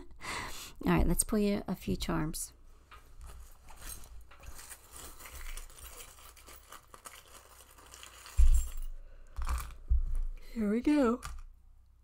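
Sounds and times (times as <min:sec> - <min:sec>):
charms clinking and rustling: 0:03.2 - 0:11.5.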